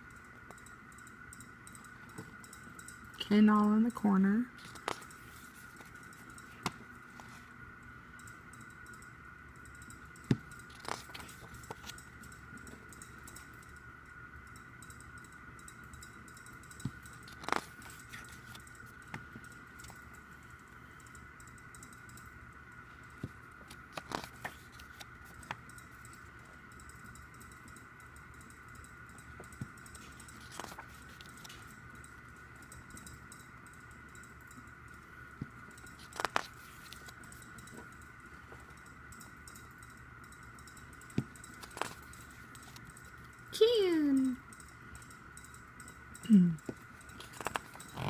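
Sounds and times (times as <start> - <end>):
photobook pages rustling: 10.7 - 12.0, 17.3 - 19.2, 23.7 - 25.6, 30.1 - 31.7, 36.0 - 37.2, 41.6 - 42.0, 47.2 - 47.8.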